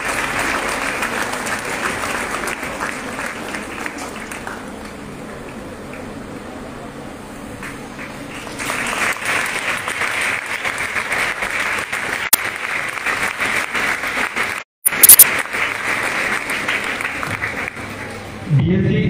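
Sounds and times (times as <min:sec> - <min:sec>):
audience applauding: 0:00.0 - 0:06.4, 0:07.6 - 0:18.4
sharp loud clicks: 0:14.9 - 0:15.4.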